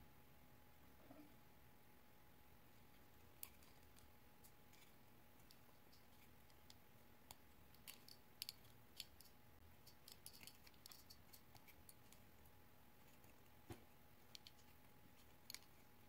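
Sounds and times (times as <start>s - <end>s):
metal wire clicking while winding: 4.7s - 12.2s, 14.3s - 15.8s.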